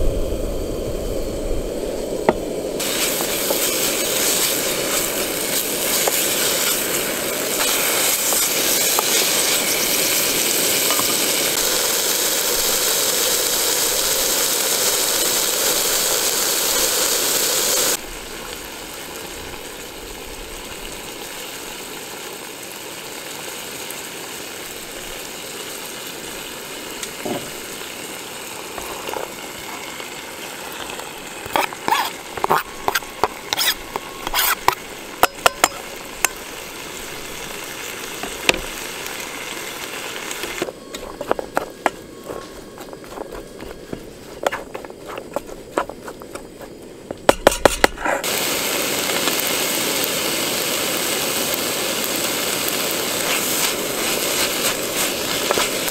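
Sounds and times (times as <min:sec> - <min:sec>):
food sizzling in a pan: 0:01.3 - 0:55.9
utensil stirring in a pan: 0:02.8 - 0:11.2, 0:30.9 - 0:36.4, 0:53.0 - 0:55.9.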